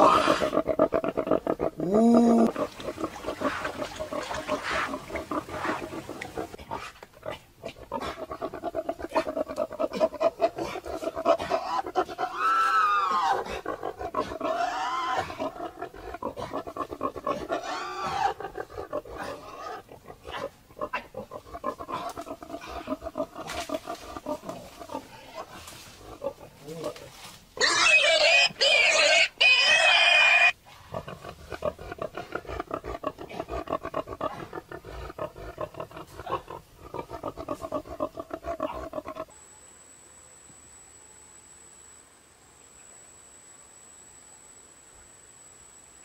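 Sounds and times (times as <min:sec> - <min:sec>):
pig calling: 0:00.0 - 0:27.0, 0:27.6 - 0:39.3.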